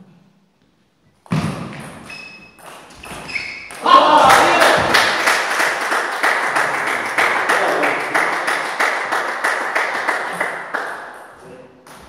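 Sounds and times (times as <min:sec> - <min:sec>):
audience applauding: 0:03.8 - 0:11.3.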